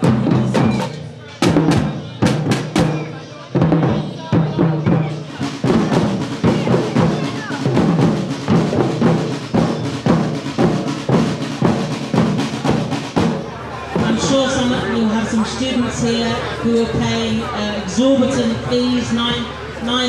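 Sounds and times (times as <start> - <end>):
snare drums: 0.0 - 15.1
bass drums beating: 0.0 - 20.0.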